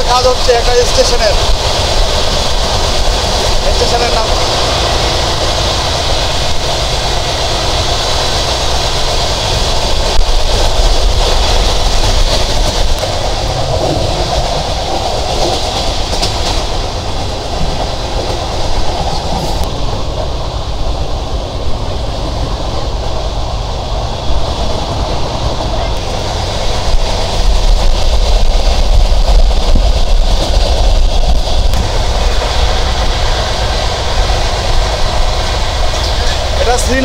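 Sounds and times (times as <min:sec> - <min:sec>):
train wheels rumbling on track: 0:00.0 - 0:37.0.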